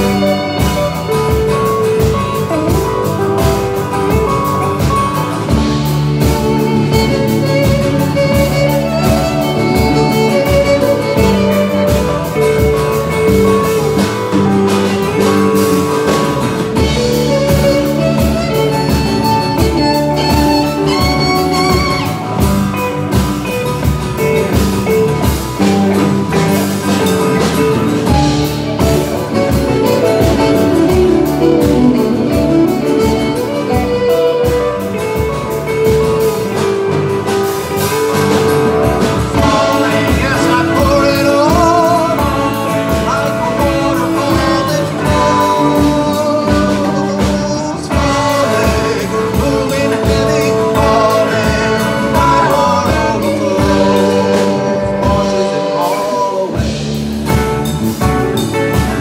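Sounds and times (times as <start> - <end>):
fiddle: 0.0 - 37.3
acoustic guitar: 0.0 - 59.0
bass guitar: 0.0 - 59.0
drum kit: 0.0 - 59.0
electric guitar: 0.0 - 59.0
hand drums: 0.0 - 59.0.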